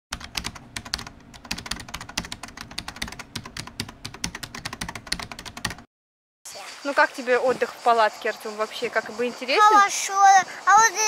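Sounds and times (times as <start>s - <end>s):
keyboard typing clicks: 0.1s - 5.8s.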